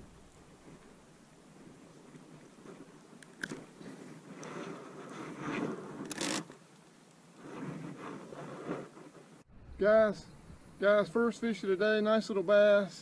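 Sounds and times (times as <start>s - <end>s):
sharp clicks: 3.2s - 3.7s
handling scrapes and crunches: 3.2s - 6.6s.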